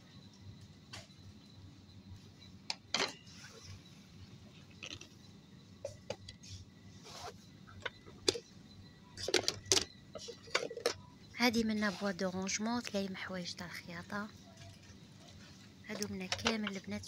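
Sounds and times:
plastic boxes knocking and clicking: 9.2 - 11.0.

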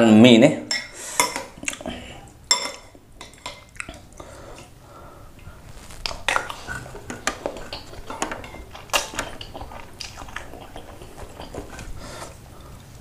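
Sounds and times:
metal cutlery clinking on ceramic bowl: 2.5 - 3.8, 7.0 - 10.3.

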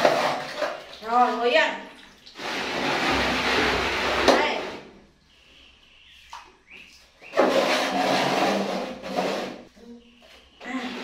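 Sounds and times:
bath water splashing: 0.0 - 4.3.

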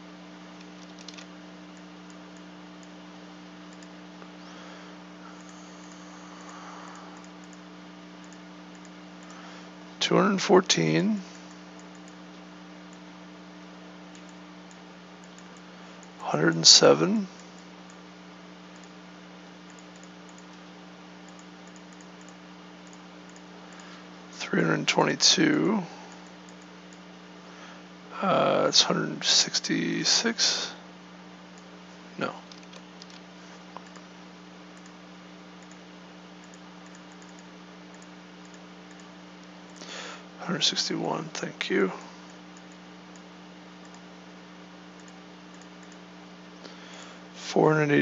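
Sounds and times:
low electrical hum and hiss: 0.0 - 48.0
computer mouse and key clicks: 0.6 - 3.0, 3.7 - 4.0, 5.4 - 7.6, 8.2 - 9.4, 11.4 - 13.0, 14.1 - 16.2, 18.7 - 19.0, 19.7 - 20.6, 21.3 - 23.9, 26.1 - 27.1, 32.4 - 34.0, 34.8 - 35.0, 35.6 - 35.8, 36.4 - 39.9, 42.3 - 44.0, 45.0 - 46.0
faint computer mouse clicks: 3.7 - 3.9, 7.2 - 7.6, 8.2 - 9.4, 21.3 - 23.9, 36.4 - 39.1, 42.3 - 44.0, 45.0 - 46.0.

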